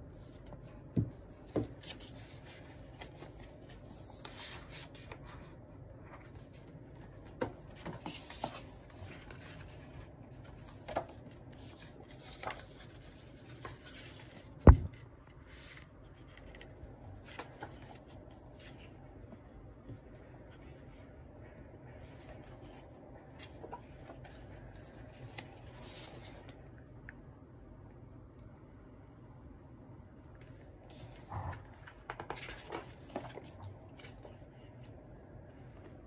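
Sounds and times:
paper sliding and rustling: 0:07.7 - 0:14.5
thump: 0:14.6 - 0:15.0.

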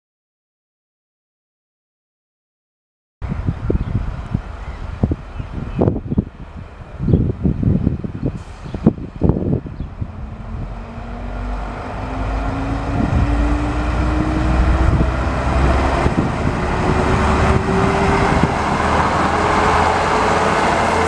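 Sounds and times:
diesel train accelerating past: 0:08.0 - 0:21.0.

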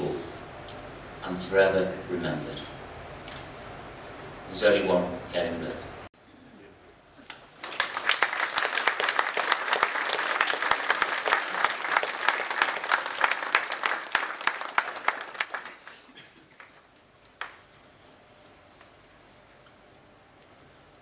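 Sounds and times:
crowd applauding: 0:07.3 - 0:17.7.

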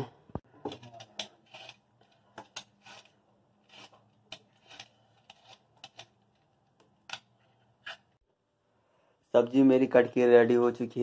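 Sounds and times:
peeler scraping potato skin: 0:00.7 - 0:06.2.

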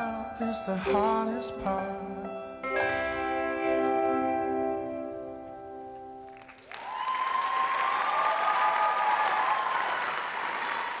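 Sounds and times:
audience applause: 0:06.3 - 0:11.0.

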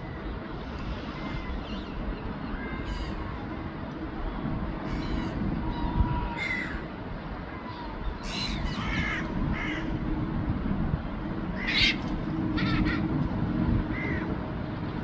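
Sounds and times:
gulls calling: 0:00.0 - 0:03.6, 0:04.8 - 0:10.1, 0:11.4 - 0:13.2, 0:13.8 - 0:14.4.

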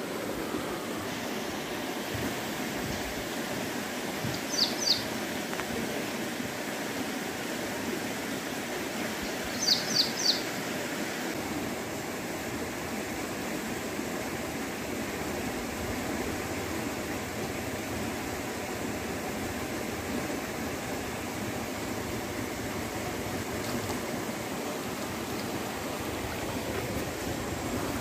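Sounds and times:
bird chirping: 0:04.3 - 0:05.1, 0:09.5 - 0:10.4
steady rushing background noise: 0:10.6 - 0:28.0.

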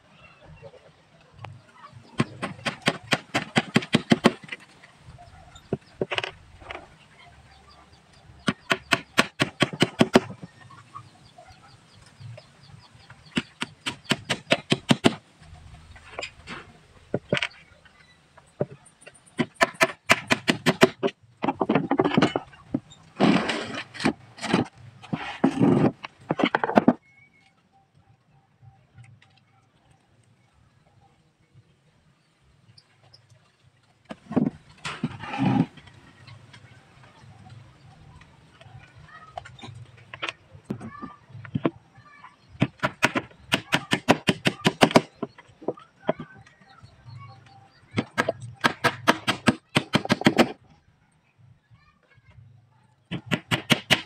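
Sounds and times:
hammer tapping nails: 0:48.0 - 0:50.6.

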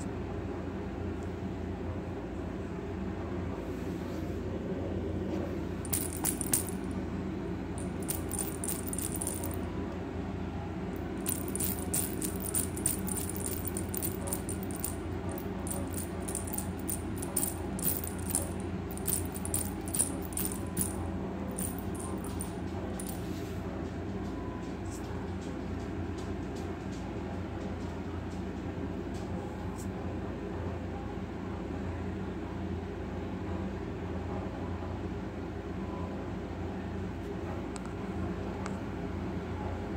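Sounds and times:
steady low hum: 0:00.0 - 0:39.9
light clicking and rattling: 0:05.9 - 0:06.9, 0:07.8 - 0:09.6, 0:11.2 - 0:23.3.

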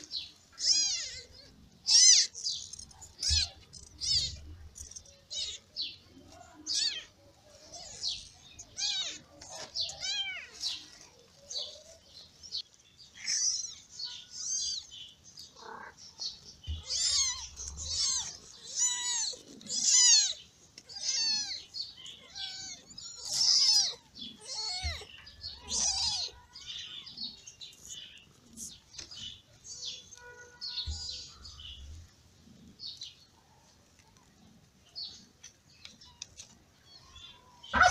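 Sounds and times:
kittens mewing: 0:00.0 - 0:12.0, 0:13.2 - 0:16.0, 0:16.7 - 0:27.1, 0:37.4 - 0:37.9.

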